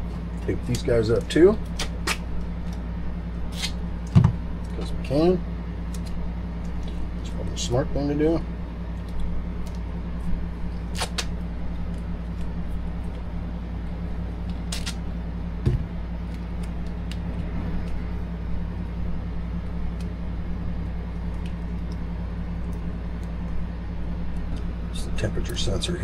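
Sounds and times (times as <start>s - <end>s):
steady low hum: 0.0s - 26.0s
tape ripping off a roll: 3.5s - 3.8s, 10.8s - 11.4s, 14.6s - 15.0s.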